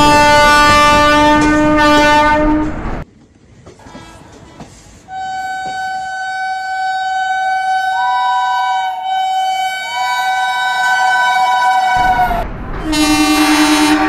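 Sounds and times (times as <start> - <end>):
train horn blast: 0.0 - 2.8, 5.1 - 14.0
higher horn note: 5.1 - 14.0.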